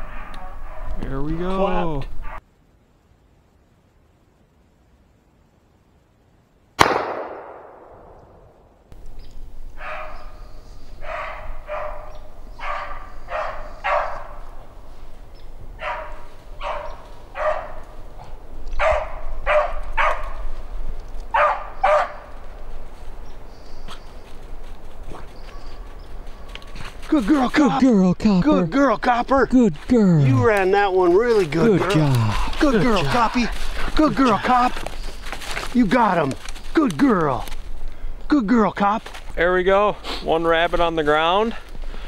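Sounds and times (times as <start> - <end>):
shotgun shot: 6.8 - 8.5.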